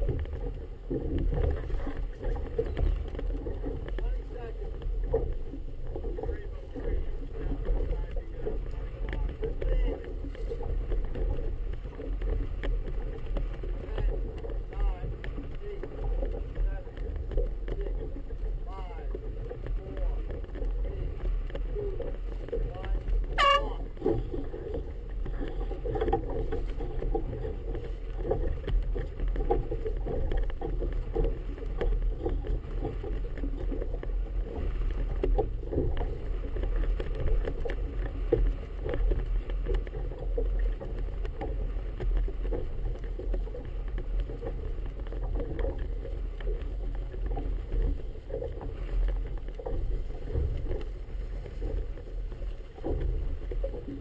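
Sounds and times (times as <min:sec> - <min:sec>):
water slapping against boat hull: 0:00.0 - 0:54.0
wind rumble on microphone: 0:00.0 - 0:54.0.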